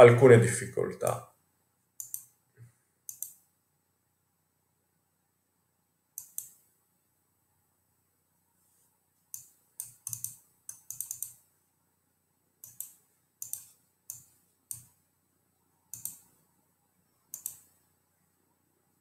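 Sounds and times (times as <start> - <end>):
keyboard and mouse clicking: 2.0 - 2.4, 3.1 - 3.4, 6.2 - 6.6, 9.3 - 11.4, 12.6 - 14.9, 15.9 - 16.3, 17.3 - 17.8.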